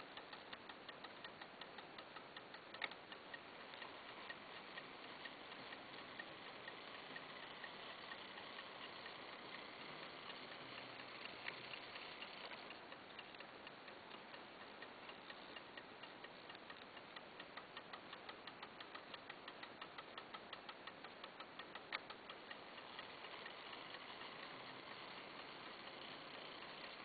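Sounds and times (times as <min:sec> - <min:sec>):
clock ticking: 0:00.0 - 0:27.0
sharp click: 0:02.5 - 0:04.0.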